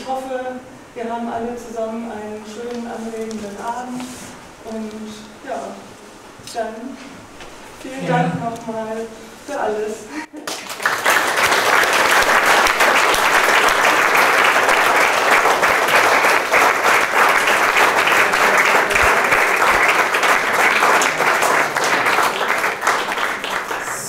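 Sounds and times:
audience applauding: 10.4 - 24.0.

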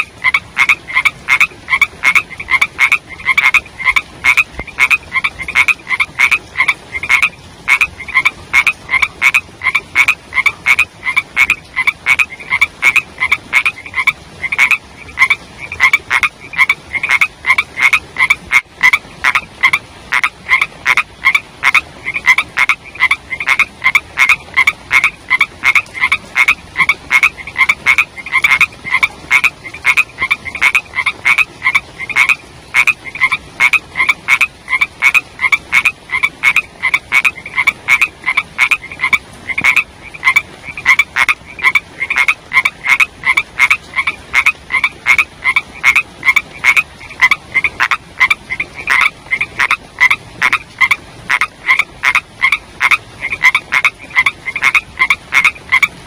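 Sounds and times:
frogs croaking: 0.0 - 56.0.

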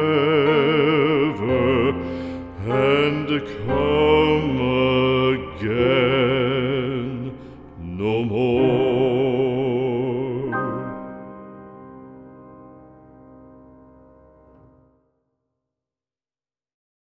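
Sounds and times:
solemn vocal music with vibrato: 0.0 - 11.4.

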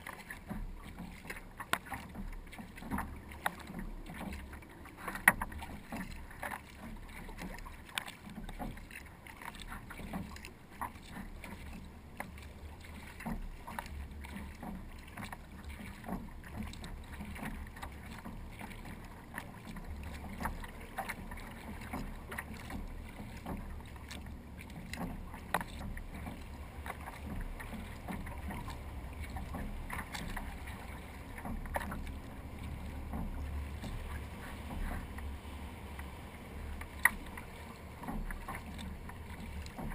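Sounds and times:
small drips and splashes: 0.0 - 39.9
water lapping against kayak hull: 0.0 - 39.9
wind rumble on microphone: 9.7 - 39.9.

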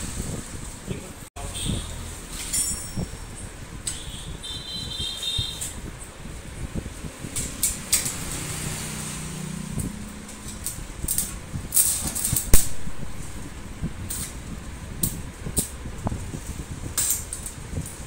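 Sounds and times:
arc welding crackling: 3.8 - 18.0.

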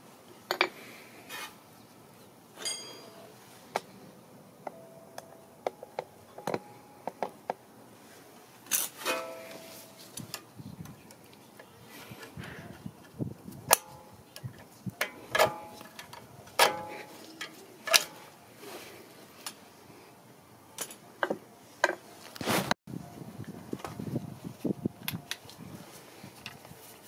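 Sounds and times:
metal tool clicking and clinking: 2.6 - 3.2.

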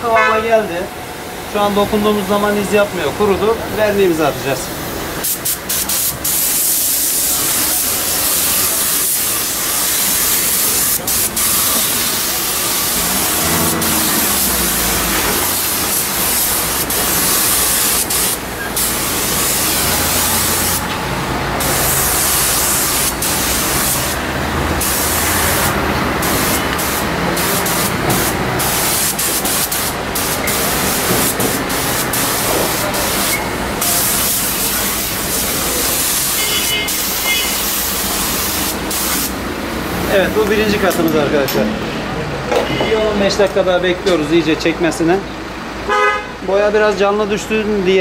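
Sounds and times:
spray gun hissing: 3.7 - 41.1.

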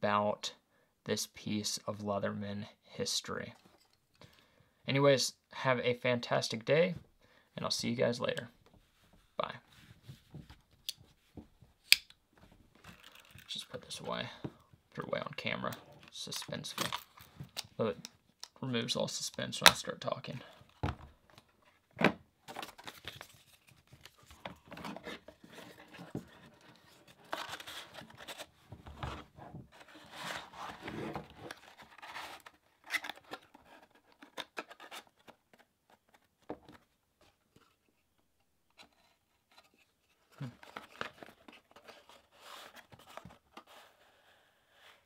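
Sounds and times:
cardboard box rustling and scraping: 24.5 - 34.0.

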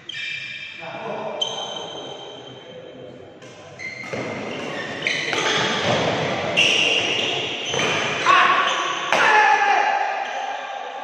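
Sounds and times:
rackets hitting shuttlecock: 3.4 - 8.2.

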